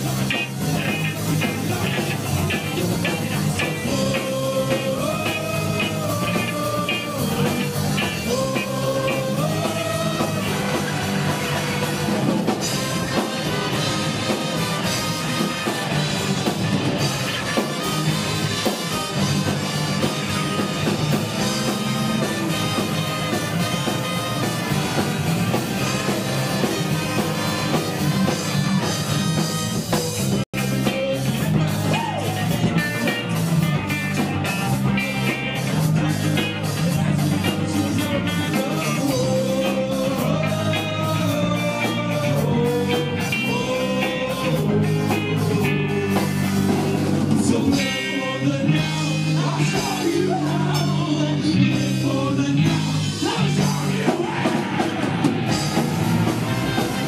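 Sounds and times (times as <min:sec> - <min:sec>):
ska band playing live: 0:00.0 - 0:57.0.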